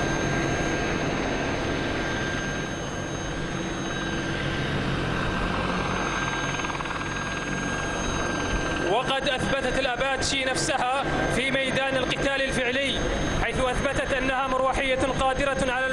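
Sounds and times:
helicopter flying past: 0.0s - 15.9s
turbine engine whine: 0.0s - 15.9s.

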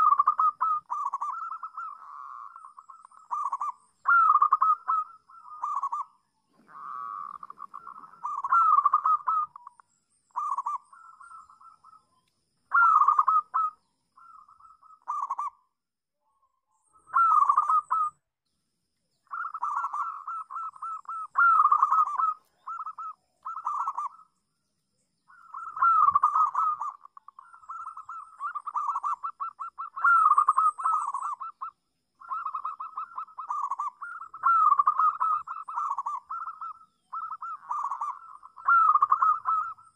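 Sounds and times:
dove cooing: 0.0s - 12.0s, 12.7s - 15.6s, 17.0s - 18.2s, 19.3s - 24.3s, 25.3s - 39.9s.

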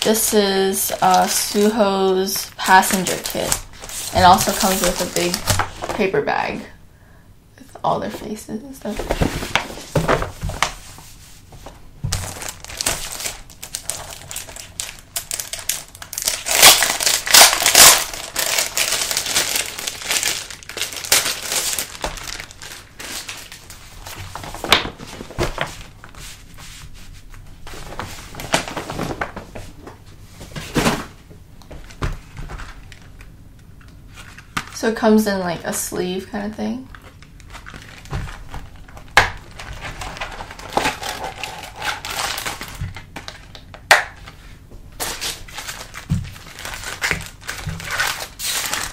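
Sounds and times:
plastic packaging crinkling: 0.0s - 6.1s, 12.1s - 26.2s, 36.9s - 44.4s, 45.0s - 48.9s.

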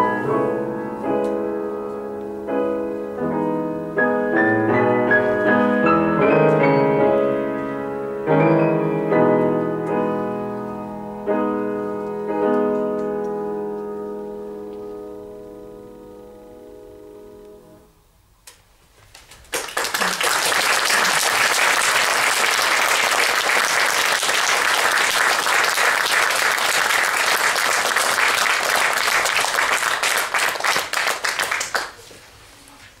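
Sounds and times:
grand piano chord: 0.0s - 17.9s
audience applauding: 19.2s - 32.1s.

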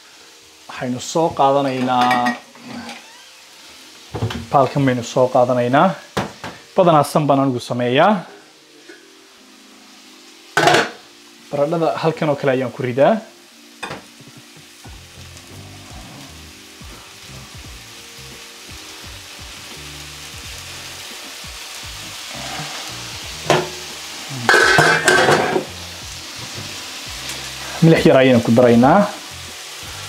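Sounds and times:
chicken sizzling in a frying pan: 0.0s - 30.0s
soft background music: 0.0s - 30.0s
pot and lid clattering in sink: 1.7s - 3.0s, 10.6s - 11.0s, 23.4s - 23.8s, 24.5s - 25.7s.

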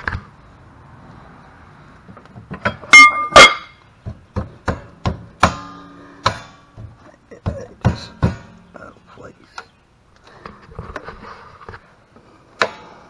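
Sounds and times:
metal parts clanking: 2.6s - 3.8s.

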